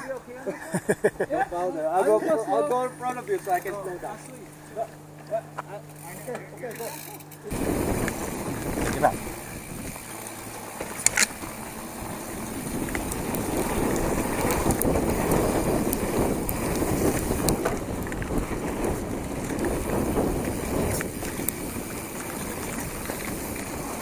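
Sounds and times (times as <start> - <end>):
bike clicks and rattles: 2.6 - 24.0
tyres crunching on dirt: 2.7 - 24.0
wind noise on microphone: 7.5 - 10.2, 11.1 - 24.0.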